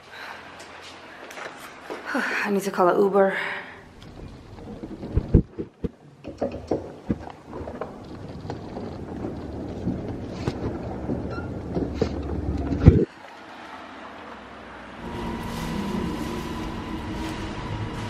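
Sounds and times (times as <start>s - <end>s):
suitcase wheels rumbling on pavement: 3.9s - 5.8s, 6.7s - 13.0s, 15.0s - 18.0s
wind on microphone: 3.9s - 5.9s.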